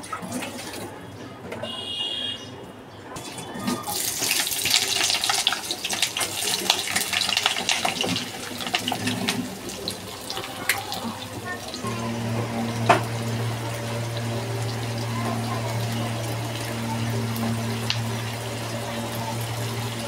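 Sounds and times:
onions sizzling in oil: 3.9 - 20.0
steady low hum: 11.6 - 20.0.

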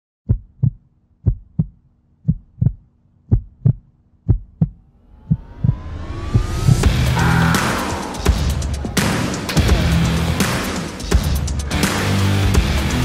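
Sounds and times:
heartbeat thumps: 0.3 - 7.1
rising tone: 4.7 - 11.3
whoosh: 4.8 - 11.3.

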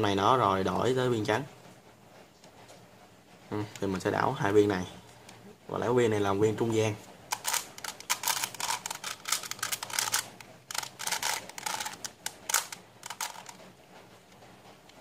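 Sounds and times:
puzzle clicking as turned: 7.3 - 13.6.

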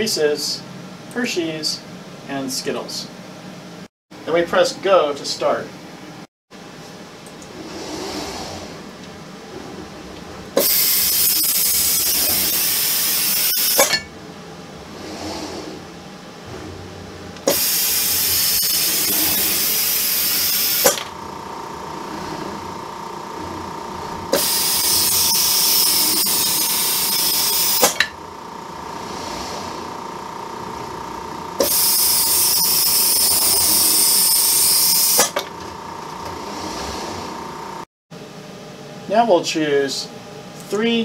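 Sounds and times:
suction gripper hissing: 10.6 - 14.0, 17.4 - 21.1, 24.3 - 28.1, 31.6 - 35.4.

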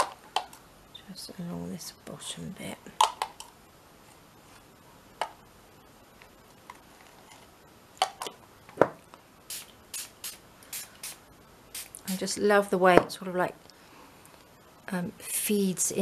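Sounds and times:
spray bottle spritzes: 9.5 - 12.0.

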